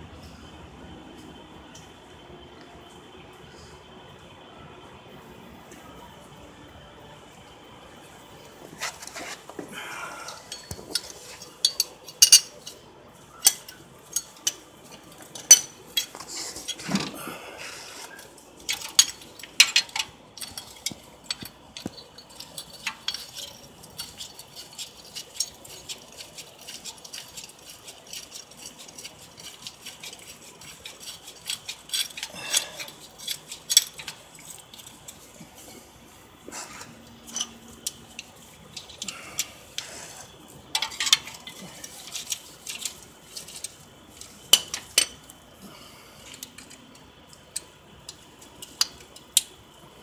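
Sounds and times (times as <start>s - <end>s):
metal tools clinking on engine: 8.8s - 12.8s, 13.4s - 17.2s, 36.5s - 40.0s, 40.7s - 45.4s.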